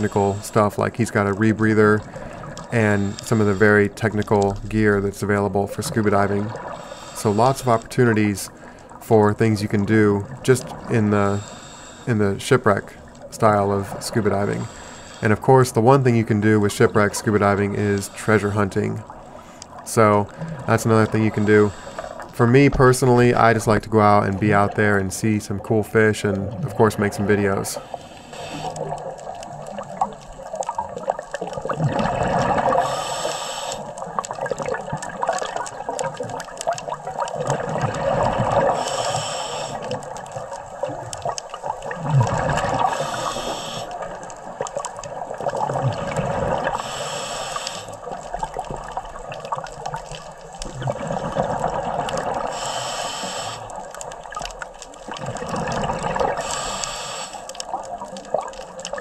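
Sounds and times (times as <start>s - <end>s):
regulator inhalation hiss: 11.3s - 12.1s, 14.6s - 15.4s, 21.4s - 22.3s, 27.8s - 28.9s, 32.7s - 33.9s, 38.7s - 39.9s, 42.8s - 44.0s, 46.7s - 48.1s, 52.5s - 53.8s, 56.4s - 57.5s
bubbling exhalation underwater: 28.8s - 32.8s, 41.6s - 43.2s, 45.2s - 46.8s, 48.4s - 52.5s, 55.1s - 56.5s.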